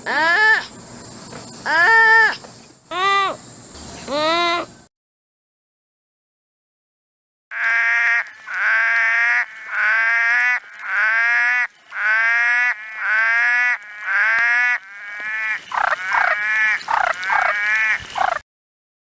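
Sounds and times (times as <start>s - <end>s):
frog calling: 7.5s - 18.4s.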